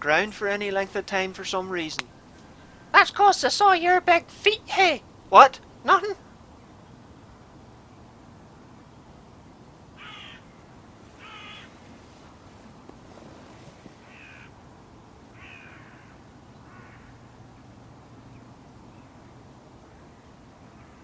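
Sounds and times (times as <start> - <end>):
crows cawing: 10.0 - 10.5, 11.2 - 11.8, 14.0 - 14.6, 15.3 - 17.3.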